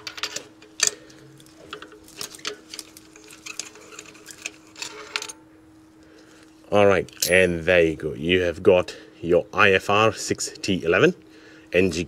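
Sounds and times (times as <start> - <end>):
faint steady hum: 0.0 - 12.0
light metal clinks: 7.1 - 7.6.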